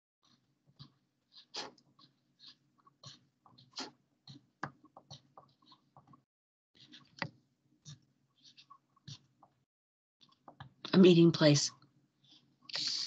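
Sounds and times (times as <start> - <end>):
pencil scratching on paper: 0.2 - 6.2, 7.8 - 9.5.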